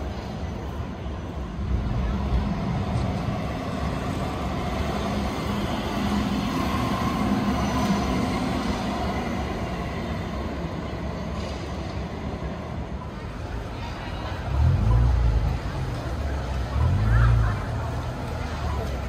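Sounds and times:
tram wheels rumbling on rails: 0.0 - 19.0.

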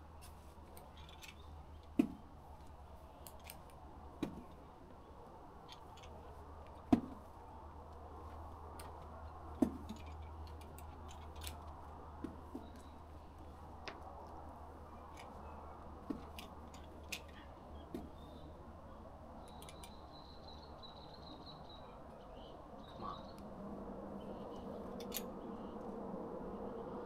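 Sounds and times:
climbing gear clicking and jangling: 0.8 - 1.4, 9.9 - 11.7.

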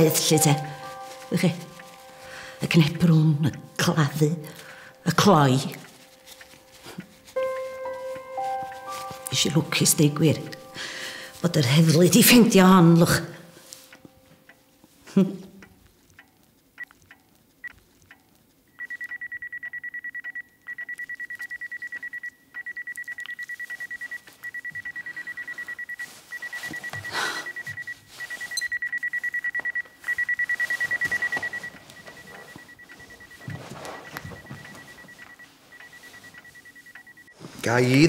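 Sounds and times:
wristwatch alarm beeping: 0.0 - 10.9, 18.8 - 38.0.

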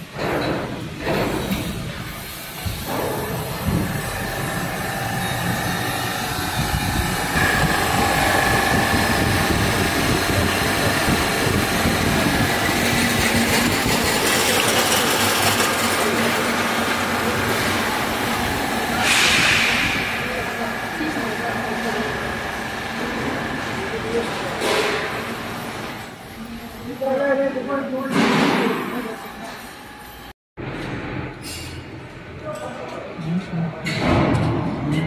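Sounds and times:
refrigeration unit running: 1.9 - 28.0.

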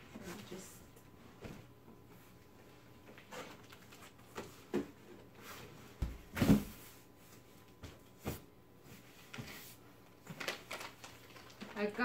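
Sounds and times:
cardboard scuffing: 5.9 - 6.9
thumps and knocks of box: 6.0 - 6.8.

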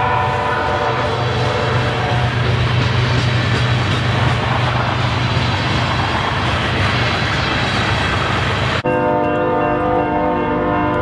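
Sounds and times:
train wheels on rail: 0.0 - 8.9.

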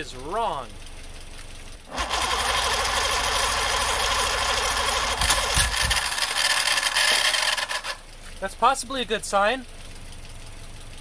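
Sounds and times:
outboard motor starter cranking: 0.3 - 8.2.

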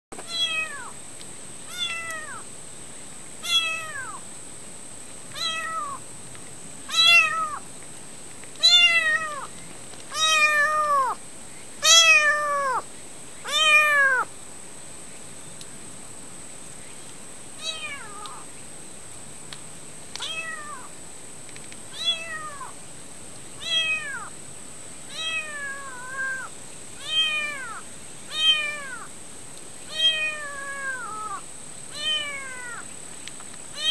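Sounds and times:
kitten meowing: 0.2 - 0.9, 1.7 - 2.4, 3.4 - 4.2, 5.4 - 6.0, 6.9 - 7.6, 8.6 - 9.5, 10.1 - 11.2, 11.8 - 12.8, 13.5 - 14.3, 17.6 - 18.4, 20.2 - 20.9, 22.0 - 22.7, 23.6 - 24.3, 25.1 - 29.1, 29.9 - 32.8.

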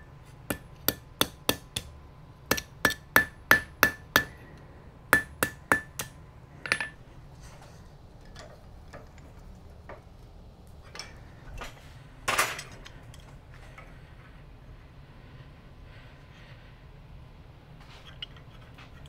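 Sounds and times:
hammer ringing on anvil: 2.5 - 4.4, 5.1 - 7.0.

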